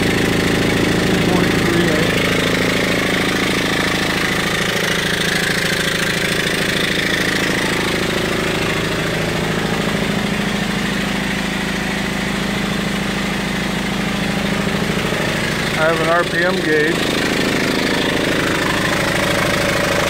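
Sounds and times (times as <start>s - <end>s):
steam engine running fast: 0.0s - 8.6s, 14.4s - 20.0s.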